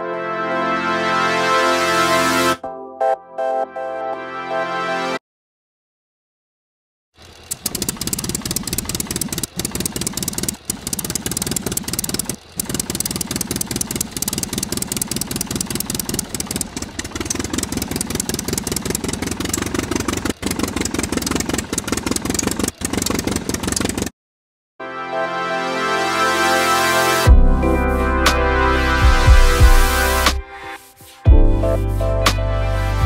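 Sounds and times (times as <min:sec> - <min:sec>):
rapid plastic rattle: 0:07.2 - 0:24.1
toy electric motor spinning gears: 0:07.2 - 0:24.1.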